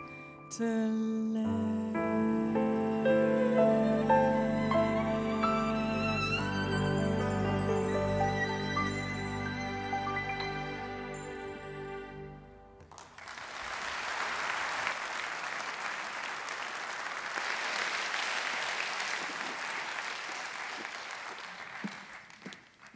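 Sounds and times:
band with violin chord: 0:02.2 - 0:12.8
audience applause: 0:12.8 - 0:22.9.

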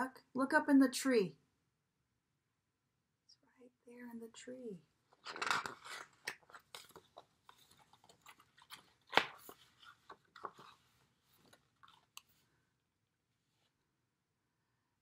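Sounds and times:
book pages rustling and turning: 0:05.1 - 0:12.6.

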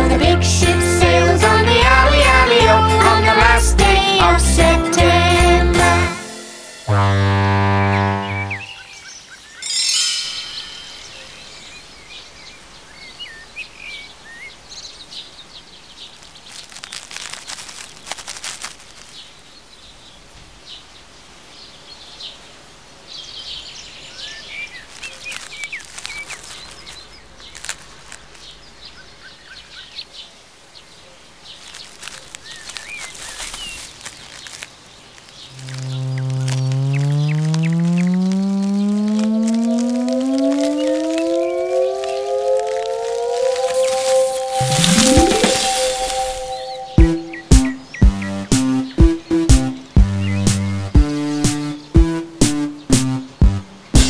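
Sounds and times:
faint outdoor hiss: 0:05.9 - 0:48.0
bright ringing sound: 0:09.6 - 0:11.7, 0:40.9 - 0:47.5
small birds chirping: 0:23.0 - 0:42.3, 0:43.8 - 0:52.0.

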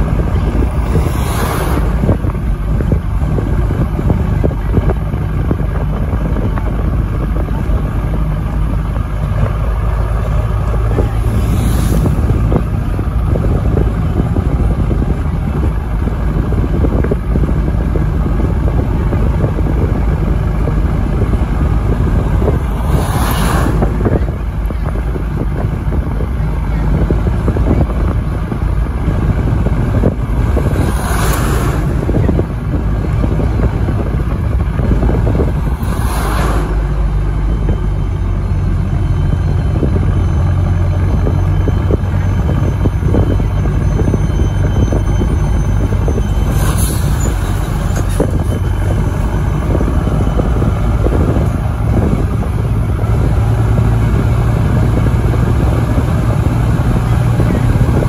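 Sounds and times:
vehicle engine and road rumble: 0:00.0 - 0:58.0
wind on microphone: 0:00.0 - 0:58.0
brief whooshes: 0:35.7 - 0:37.0.

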